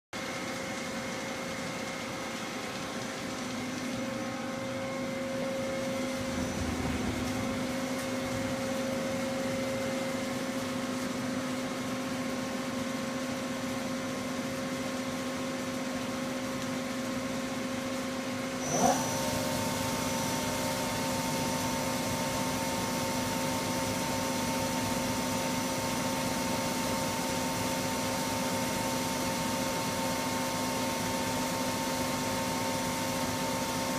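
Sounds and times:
lathe machine hum: 0:02.1 - 0:10.5, 0:18.6 - 0:25.7
drive spinning up whine: 0:03.6 - 0:10.3, 0:18.6 - 0:24.9.

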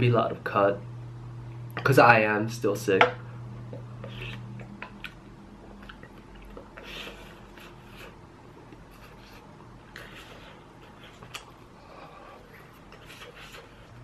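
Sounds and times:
person chewing food: 0:03.6 - 0:14.0.

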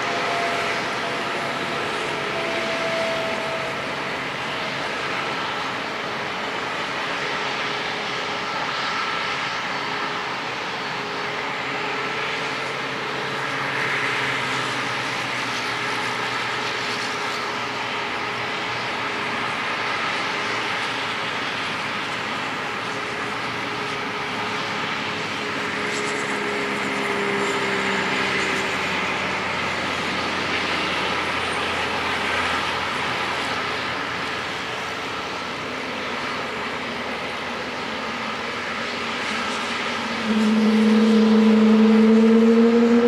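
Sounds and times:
jet engines running: 0:00.0 - 0:43.0.

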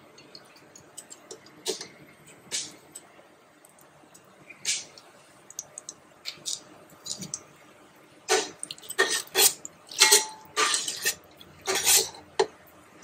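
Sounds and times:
spices ticking in hot oil: 0:00.0 - 0:07.6, 0:08.3 - 0:12.6
metal spoon scraping steel pot: 0:08.3 - 0:12.2.

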